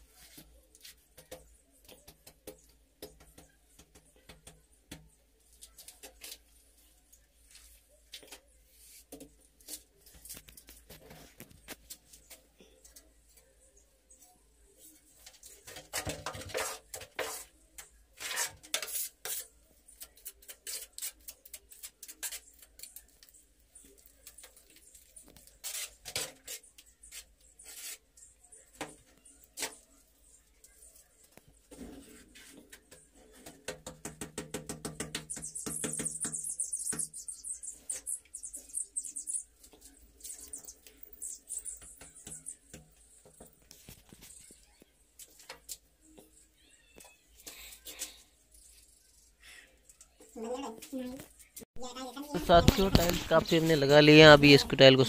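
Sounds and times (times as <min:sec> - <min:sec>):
trowel scraping mortar: 0:15.7 - 0:17.6, 0:18.2 - 0:22.8, 0:25.4 - 0:28.1.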